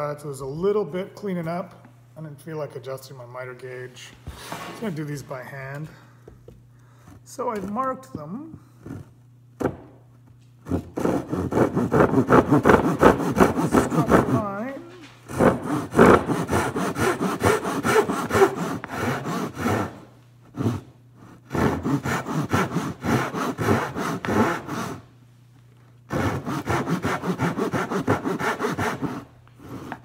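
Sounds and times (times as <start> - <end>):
hand saw cutting wood: 7.0 - 9.2, 10.6 - 25.0, 26.1 - 30.0.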